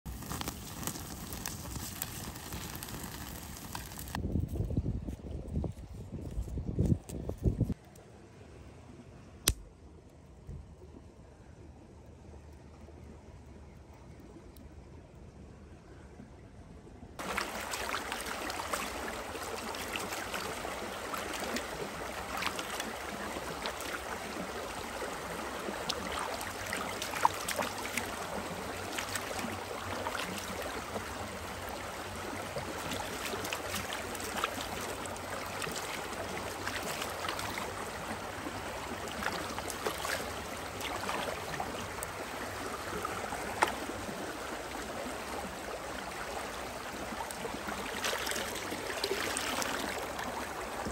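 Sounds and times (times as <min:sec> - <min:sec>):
creek running over stones: 0:00.0 - 0:04.2, 0:17.2 - 0:50.9
potatoes rinsed in water: 0:00.1 - 0:04.2, 0:17.2 - 0:43.8
hands splashing in water: 0:17.2 - 0:24.8, 0:25.8 - 0:30.8, 0:32.6 - 0:37.9, 0:39.0 - 0:42.0, 0:47.8 - 0:50.2.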